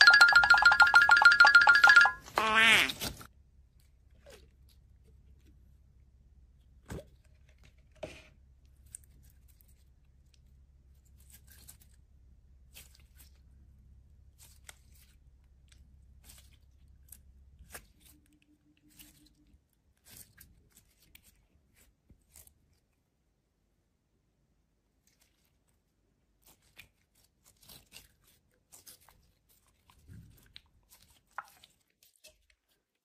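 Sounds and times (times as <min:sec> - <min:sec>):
slime wet crackles and pops: 0:26.5 - 0:32.7.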